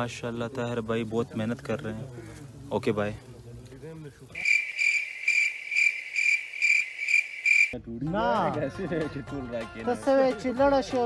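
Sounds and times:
crickets chirping: 0.0 - 7.8.

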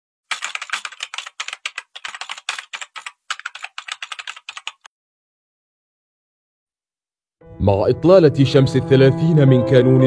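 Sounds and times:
keyboard typing: 0.3 - 4.9.

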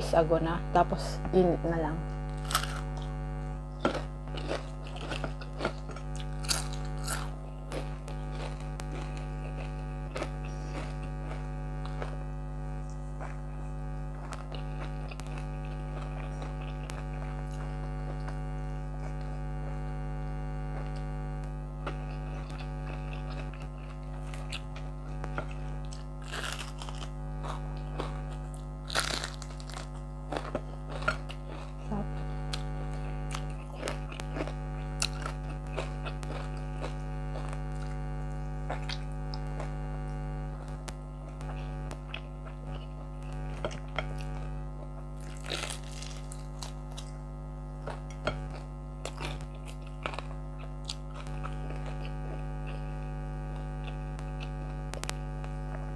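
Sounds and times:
air conditioner humming: 0.0 - 55.9
chewing and crunching food: 2.2 - 55.9.

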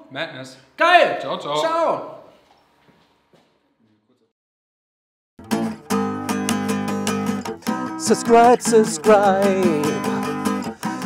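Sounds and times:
acoustic guitar strumming: 5.4 - 11.0
man singing: 8.0 - 11.0.

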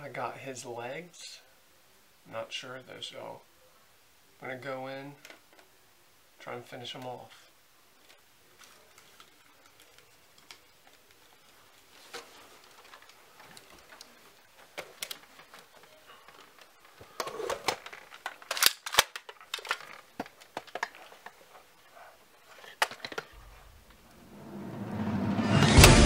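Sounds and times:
gear rustling: 8.0 - 24.1
sharp clicks of handled gear: 12.1 - 21.4.

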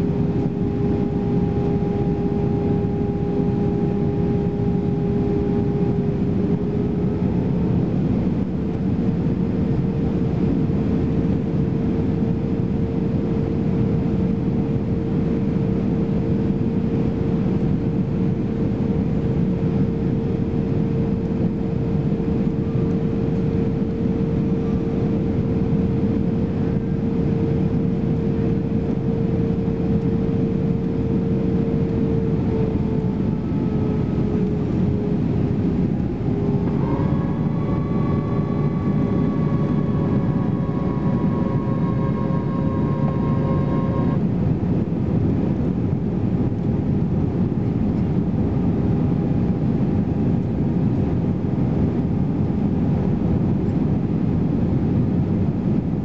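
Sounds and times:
flaps extending whine: 0.0 - 7.9, 19.8 - 45.4
aircraft cabin roar: 0.0 - 56.0.

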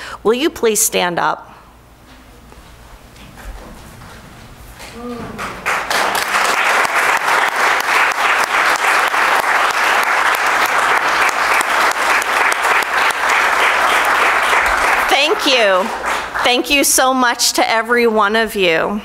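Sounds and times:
crowd applauding: 5.3 - 17.0.

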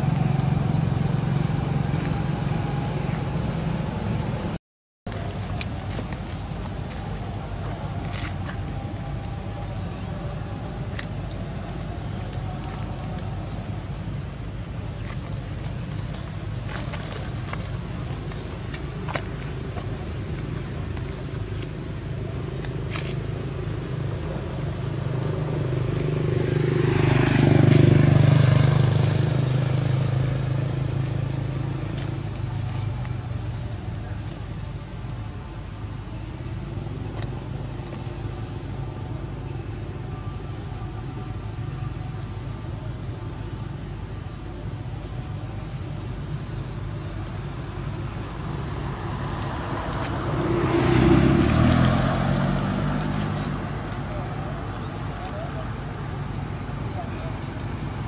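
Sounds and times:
vehicle passing by: 0.0 - 4.6, 15.0 - 34.1, 47.6 - 58.0.

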